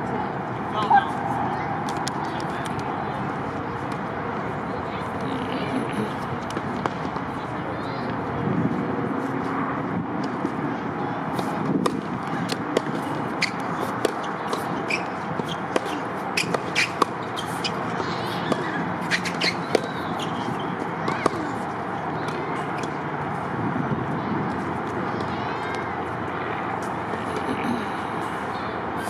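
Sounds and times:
steady background hum: 0:00.0 - 0:29.0
tennis balls struck by rackets: 0:01.8 - 0:02.8, 0:06.4 - 0:07.4, 0:11.3 - 0:23.5
tennis balls bouncing on hard court: 0:11.3 - 0:23.1.

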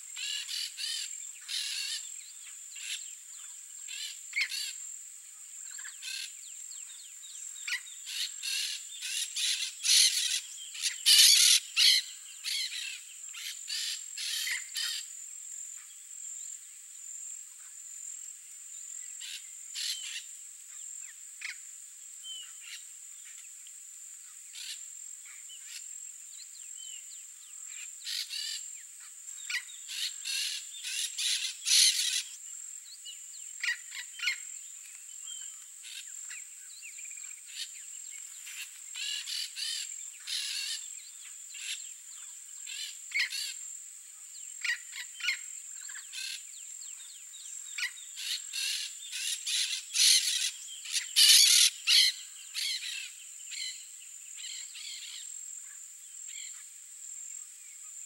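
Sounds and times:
birds chirping and calling: 0:07.6 - 0:15.1, 0:29.4 - 0:32.4, 0:47.7 - 0:55.3.

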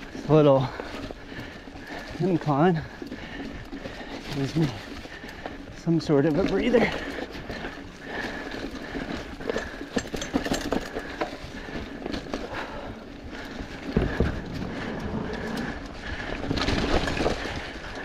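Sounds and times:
bike rattling and clicking: 0:00.0 - 0:18.0
tyres crunching through leaves: 0:00.0 - 0:18.0
heavy low thump: 0:13.9 - 0:15.4.

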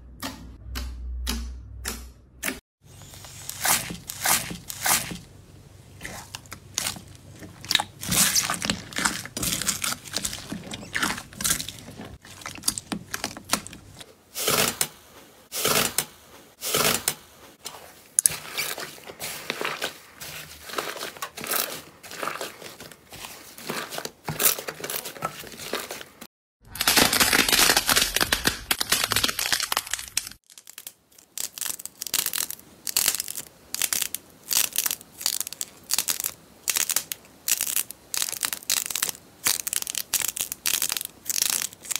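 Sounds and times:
foam beads crunching: 0:02.9 - 0:05.2, 0:06.0 - 0:14.6, 0:17.7 - 0:41.9
slime crackling and clicking: 0:26.9 - 0:41.9.

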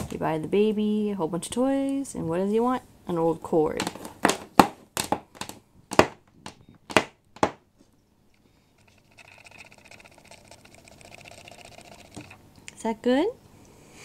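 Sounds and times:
faint steady whir: 0:07.8 - 0:14.0.

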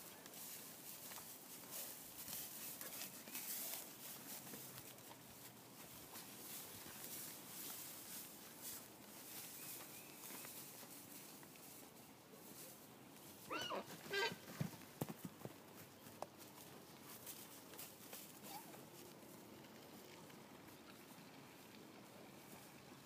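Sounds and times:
horse squealing: 0:13.5 - 0:14.4.

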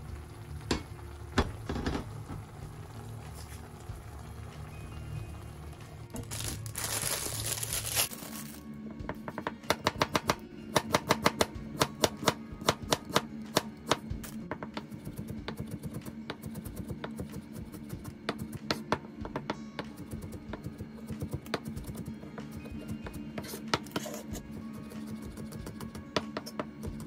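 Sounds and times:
knife chopping on plastic board: 0:09.2 - 0:22.5, 0:23.4 - 0:27.0.

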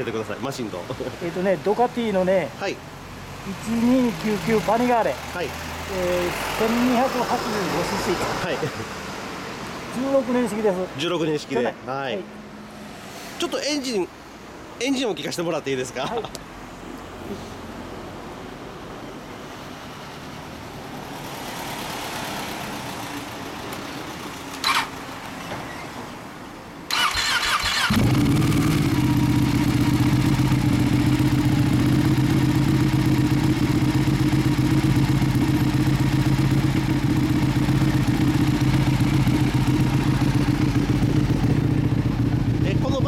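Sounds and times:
motorcycle starter cranking: 0:24.6 - 0:24.9, 0:26.9 - 0:28.8
motorcycle engine idling: 0:26.9 - 0:43.0.

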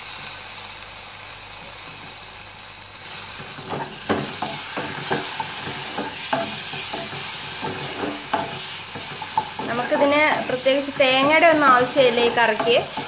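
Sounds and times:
onions sizzling in hot oil: 0:00.0 - 0:13.0
spatula knocking against pan: 0:03.7 - 0:13.0.

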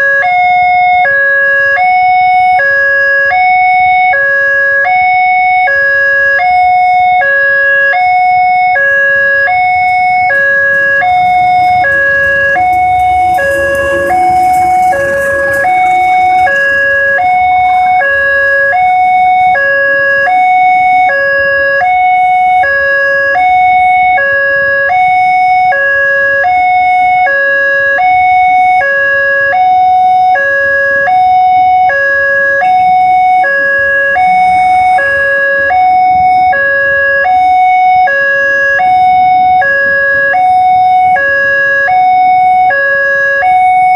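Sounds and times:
level crossing warning bell: 0:00.0 - 0:43.9
passenger train passing: 0:08.0 - 0:23.9.

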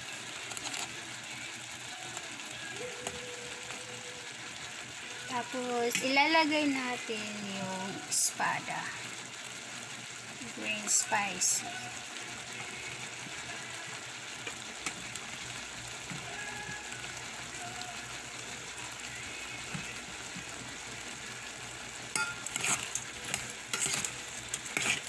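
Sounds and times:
shrimp sizzling in a pot: 0:00.0 - 0:25.0
spatula scraping a pot: 0:22.2 - 0:25.0.

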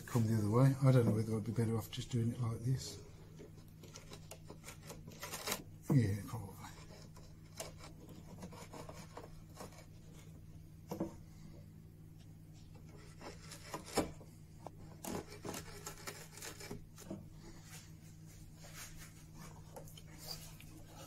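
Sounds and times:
chisel scraping wood: 0:03.4 - 0:05.7, 0:06.6 - 0:10.4, 0:12.6 - 0:17.3.

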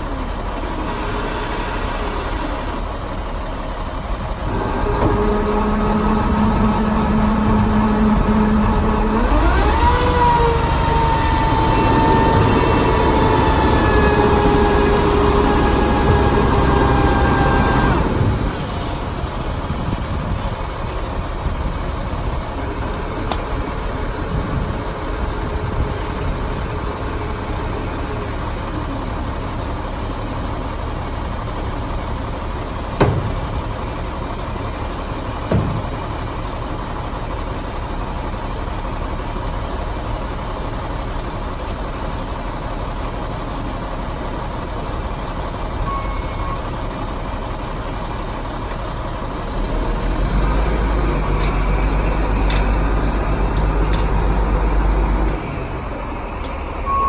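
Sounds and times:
truck diesel engine running: 0:00.0 - 0:57.0.

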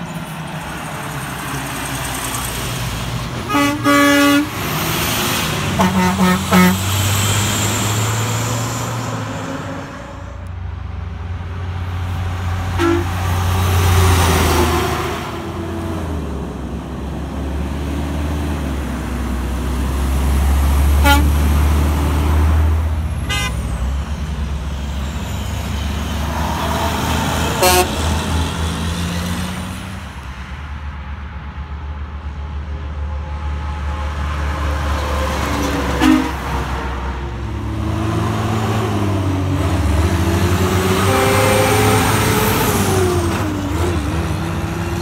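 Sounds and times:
heavy trucks passing: 0:00.0 - 0:45.0
air horn toots: 0:03.5 - 0:04.6, 0:05.8 - 0:06.9, 0:12.8 - 0:13.2, 0:21.0 - 0:21.4, 0:23.2 - 0:23.6, 0:27.6 - 0:28.0, 0:36.0 - 0:36.6, 0:40.9 - 0:42.2.

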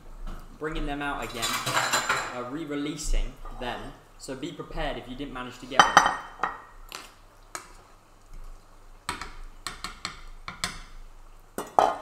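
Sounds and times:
utensils clinking against pans: 0:01.2 - 0:02.4.

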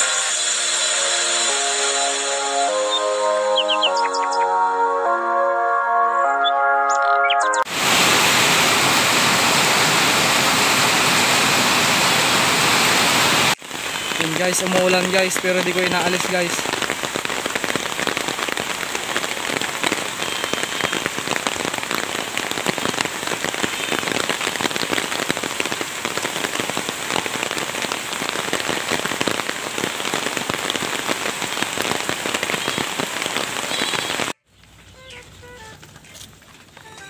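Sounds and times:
rain falling: 0:07.7 - 0:37.0.

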